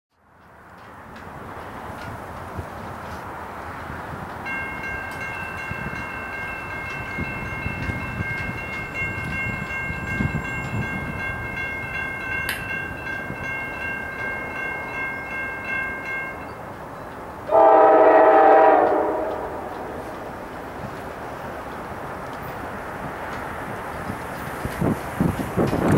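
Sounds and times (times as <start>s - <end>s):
crossing warning bell ringing: 4.4s - 22.7s
locomotive air horn blast: 17.5s - 20.0s.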